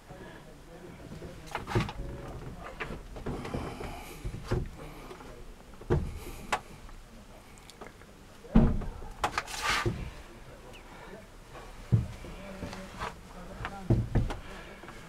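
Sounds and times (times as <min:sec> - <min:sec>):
dull knocks and thumps: 0:01.1 - 0:04.9, 0:05.6 - 0:06.7, 0:11.6 - 0:14.6.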